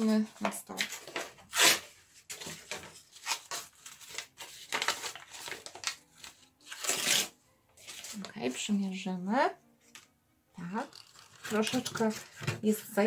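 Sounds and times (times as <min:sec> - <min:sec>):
cardboard being crumpled: 0:02.4 - 0:08.3.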